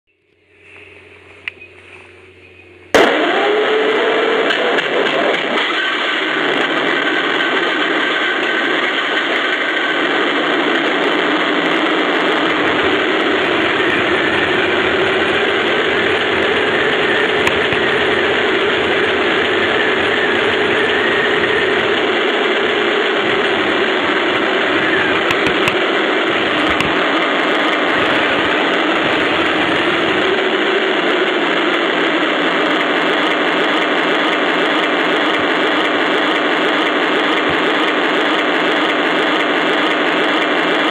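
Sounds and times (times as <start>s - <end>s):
toy tank engine and drive noise: 2.9s - 40.9s
deep rumble: 5.9s - 33.1s.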